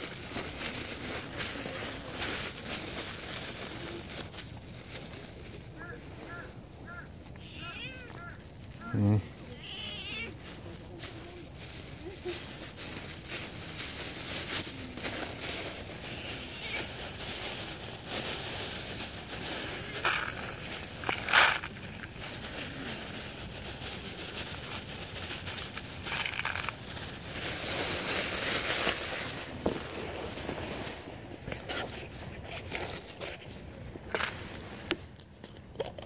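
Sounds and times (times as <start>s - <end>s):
plastic bag crinkling: 0.0s - 35.2s
dry kibble shaken into bowl: 11.9s - 29.4s.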